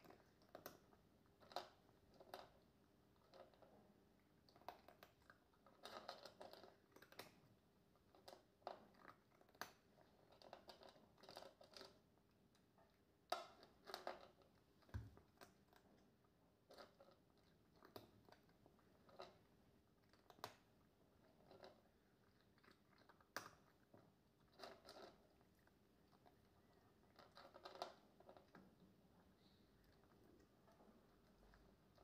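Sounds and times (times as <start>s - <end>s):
cat crunching food: 4.5s - 12.0s, 13.4s - 16.1s, 16.7s - 32.0s.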